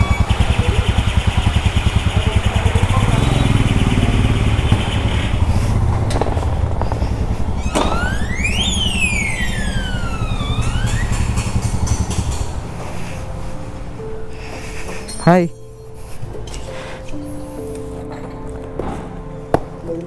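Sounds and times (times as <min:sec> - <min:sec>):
rising and falling whine: 0:00.0 - 0:13.3
motorcycle engine pulsing: 0:00.0 - 0:14.2.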